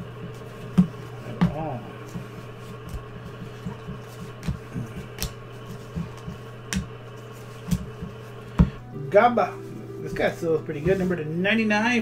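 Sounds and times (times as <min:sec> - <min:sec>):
steady low hum: 0:00.0 - 0:12.0
trading cards tapping and clicking: 0:00.3 - 0:08.8.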